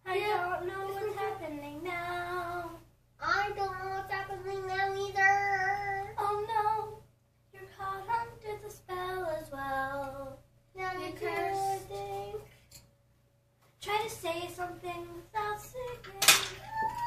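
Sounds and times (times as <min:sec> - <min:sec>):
child singing unaccompanied: 0:00.0 - 0:12.5, 0:13.8 - 0:17.0.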